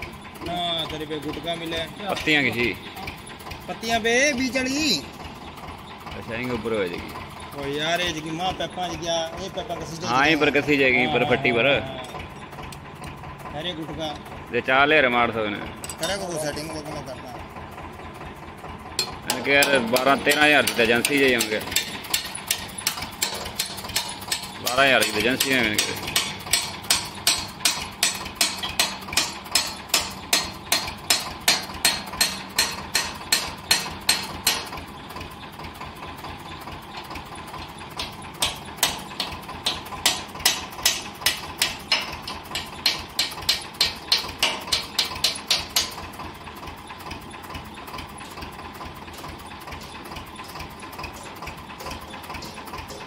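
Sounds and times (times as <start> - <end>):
hand hammers striking steel: 19.0 - 34.7, 38.0 - 46.0, 49.8 - 53.0.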